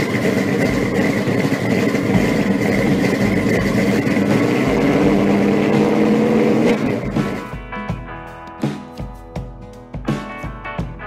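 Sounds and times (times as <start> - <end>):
car engine running: 0.0 - 7.7.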